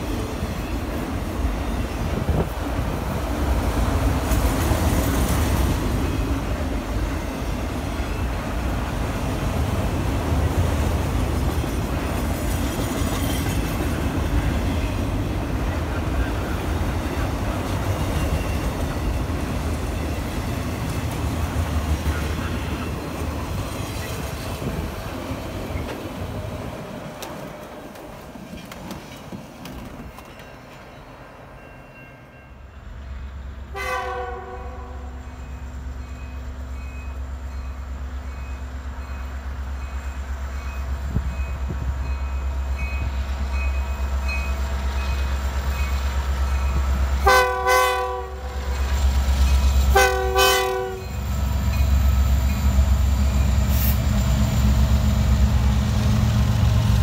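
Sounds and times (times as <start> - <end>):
diesel locomotive engine rumble: 0.0 - 57.0
locomotive horn blasts: 33.7 - 35.2, 47.2 - 48.8, 49.9 - 51.1.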